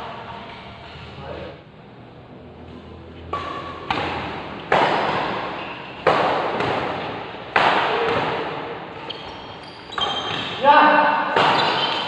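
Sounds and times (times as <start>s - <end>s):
badminton racket hitting shuttlecock: 3.3s - 8.7s, 11.2s - 12.0s.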